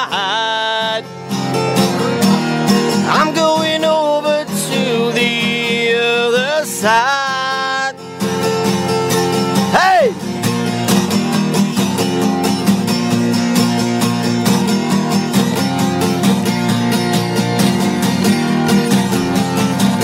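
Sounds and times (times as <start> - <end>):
person singing: 0.0 - 1.0, 3.0 - 8.0, 9.7 - 10.2
acoustic guitar strumming: 0.0 - 20.0
bending lead guitar notes: 0.0 - 20.0.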